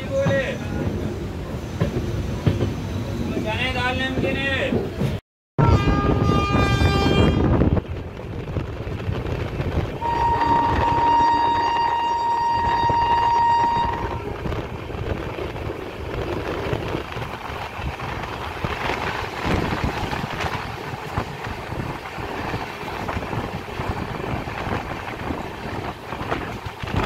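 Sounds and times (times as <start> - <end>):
moving train rumble and rattle: 0.0 - 27.0
train horn: 5.6 - 7.6, 10.0 - 14.4
wind noise: 5.6 - 27.0.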